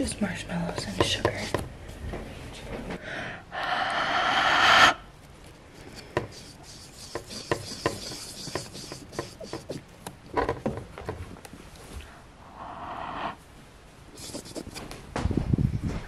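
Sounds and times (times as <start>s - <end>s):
rubbing hiss on microphone: 3.6s - 5.0s, 5.8s - 9.8s, 12.5s - 13.4s, 14.1s - 14.9s.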